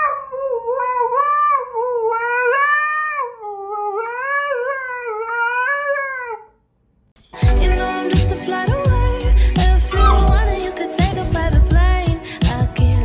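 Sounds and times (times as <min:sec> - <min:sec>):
dog howling: 0:09.9 - 0:10.9.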